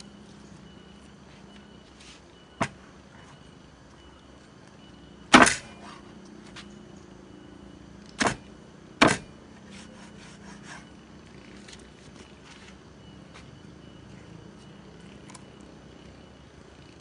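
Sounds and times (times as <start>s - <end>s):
cleaver chopping on wooden board: 5.4s - 5.6s, 8.2s - 8.4s, 9.0s - 9.3s.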